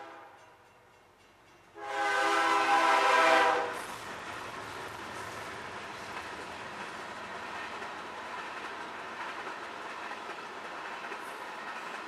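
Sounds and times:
train wheels on rails: 0.0s - 12.0s.

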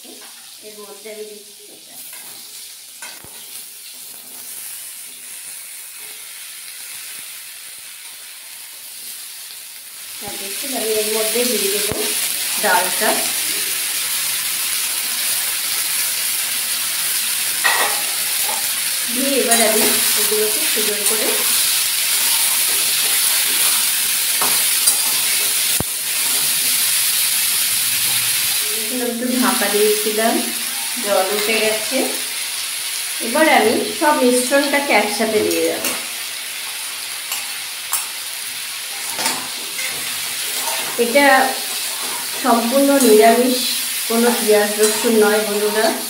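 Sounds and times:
vegetables sizzling in hot oil: 0.0s - 46.0s
metal spatula stirring: 20.9s - 25.6s, 39.0s - 41.1s, 41.7s - 43.4s, 44.2s - 45.5s.

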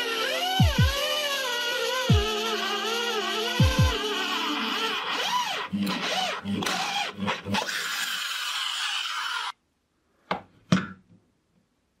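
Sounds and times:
power drill grinding through steel: 0.0s - 9.6s.

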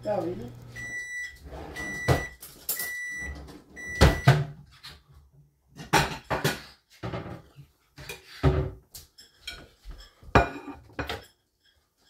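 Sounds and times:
appliance timer beeping: 0.0s - 4.4s.

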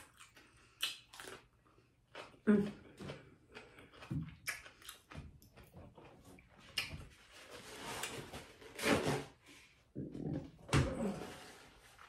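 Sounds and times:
crunchy chewing of cucumber: 0.0s - 7.4s.

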